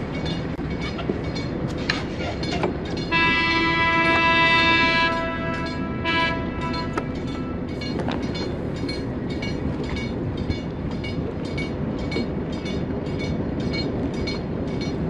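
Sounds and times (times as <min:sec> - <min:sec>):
warning bell clanking: 0:05.0 - 0:15.0.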